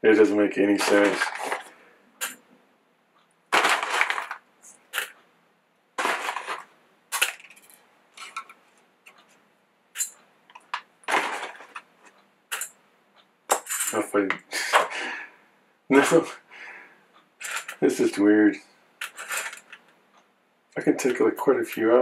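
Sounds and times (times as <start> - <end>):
coffee bag crinkling: 0.8 - 1.7.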